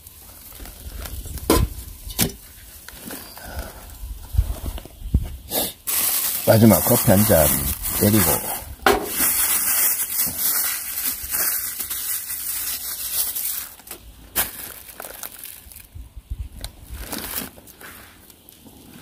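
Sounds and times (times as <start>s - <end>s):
plastic bag crinkling: 5.8s - 19.0s.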